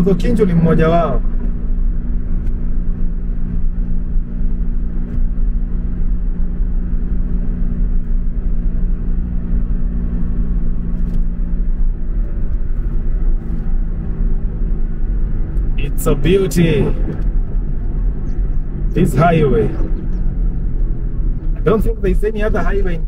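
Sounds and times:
engine and tyres rumbling on road: 0:00.0 - 0:23.0
engine hum: 0:00.0 - 0:23.0.

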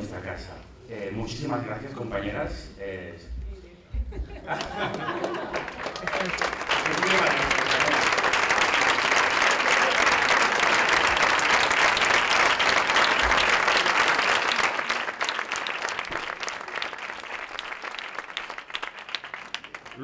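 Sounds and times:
audience applauding: 0:04.5 - 0:20.0.

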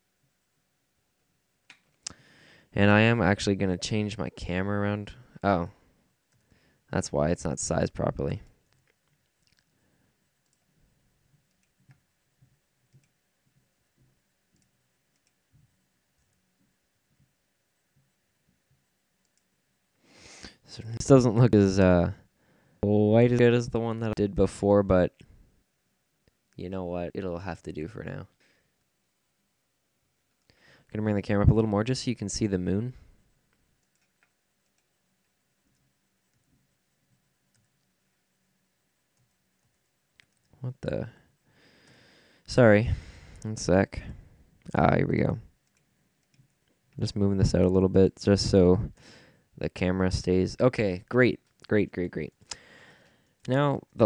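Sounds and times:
computer mouse clicks: 0:10.4 - 0:10.7, 0:11.4 - 0:12.0, 0:12.9 - 0:13.2, 0:14.5 - 0:15.4, 0:33.8 - 0:36.5, 0:45.6 - 0:46.7.

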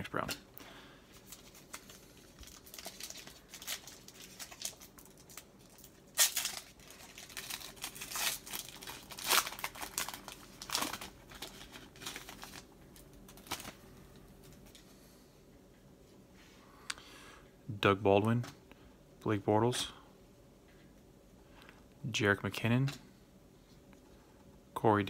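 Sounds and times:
foil pack crinkling: 0:01.1 - 0:14.8.

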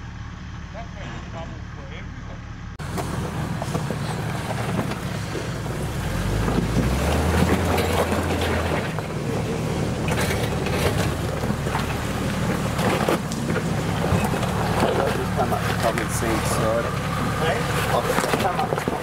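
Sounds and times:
car engine climbing: 0:00.0 - 0:19.0
rocks crunching under tyres: 0:02.8 - 0:19.0.

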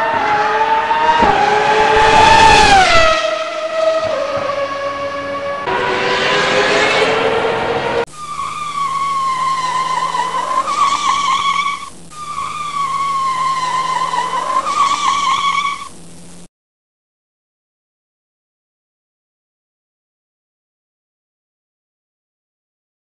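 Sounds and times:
vehicle engine revving: 0:00.0 - 0:16.4
high drivetrain whine: 0:00.0 - 0:16.5.

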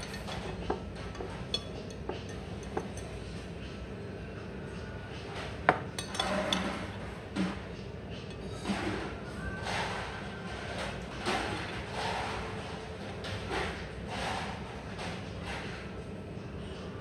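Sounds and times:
cutlery clinking on plate: 0:00.0 - 0:03.1, 0:05.7 - 0:06.9.

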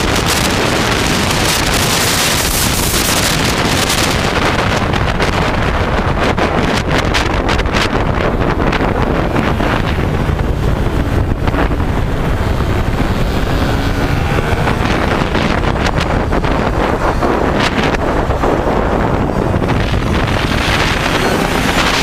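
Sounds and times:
racing motorcycle engines: 0:00.0 - 0:22.0
wind buffeting microphone: 0:00.0 - 0:22.0.

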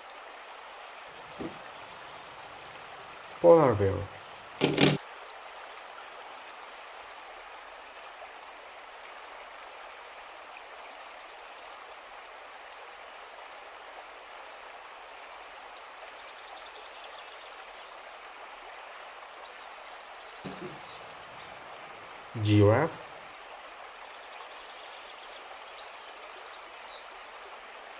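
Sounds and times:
steady outdoor hiss: 0:00.0 - 0:27.9
small birds chirping: 0:00.6 - 0:04.8, 0:19.4 - 0:27.1.

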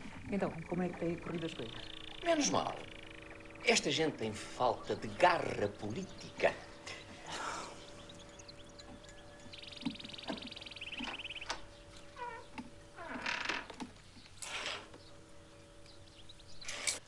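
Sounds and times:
songbird high trill: 0:01.1 - 0:13.3.

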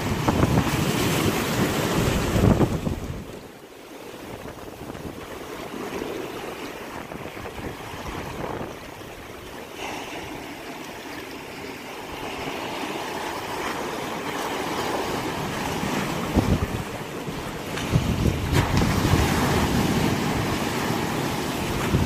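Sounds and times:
ocean surf over rocks: 0:00.0 - 0:22.0.

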